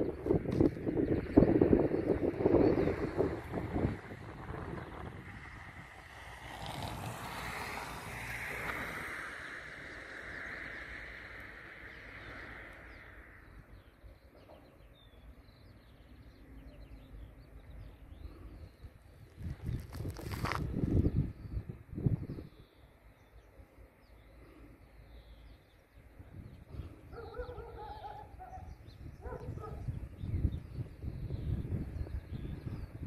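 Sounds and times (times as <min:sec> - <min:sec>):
vehicle passing by: 0:02.2 - 0:13.5.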